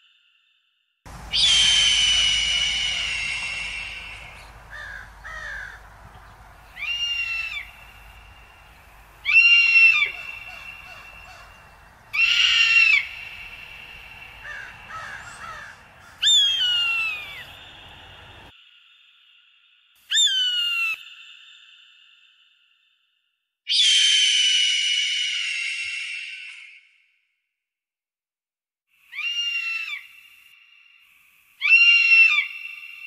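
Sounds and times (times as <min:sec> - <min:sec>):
eagle piercing calls: 0:01.1 - 0:18.5
faint short bird calls: 0:01.1 - 0:18.5.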